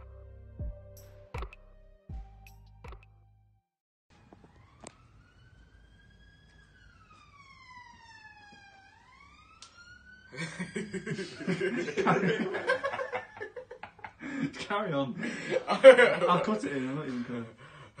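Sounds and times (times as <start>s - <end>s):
faint siren wailing: 4.1s - 12.5s
people laughing and talking: 10.4s - 17.6s.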